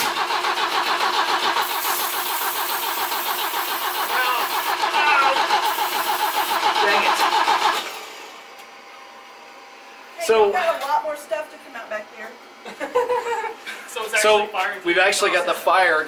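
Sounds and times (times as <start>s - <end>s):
car engine cranking: 0.0s - 8.3s.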